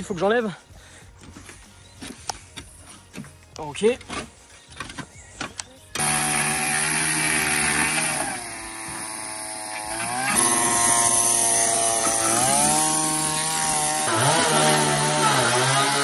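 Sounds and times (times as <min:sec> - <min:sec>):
power saw cutting wood: 0:06.0 - 0:16.0.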